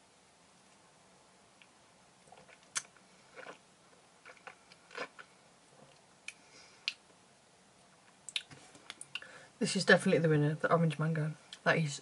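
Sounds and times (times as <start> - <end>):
lip smacks: 2.3 - 3.6, 5.9 - 7.1, 8.2 - 9.3
tongue clicks: 8.3 - 9.3.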